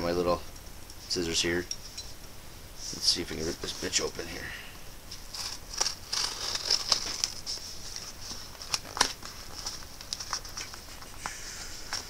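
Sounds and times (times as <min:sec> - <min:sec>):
tape and cardboard tearing: 0:05.2 - 0:07.5, 0:08.6 - 0:09.6.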